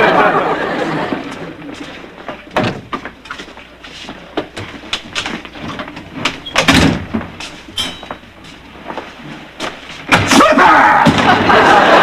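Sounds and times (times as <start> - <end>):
footsteps on wooden floor: 1.1 - 10.1
door handling: 4.6 - 8.3
loud door bang: 6.6 - 7.3.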